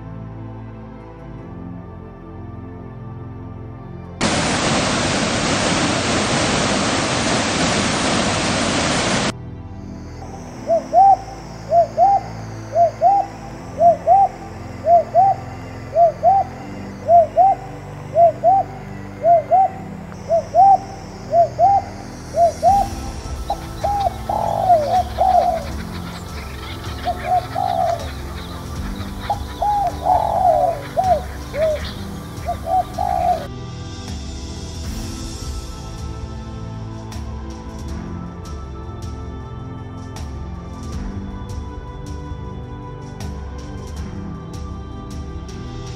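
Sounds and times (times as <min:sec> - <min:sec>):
doves cooing: 0:10.7 - 0:33.5.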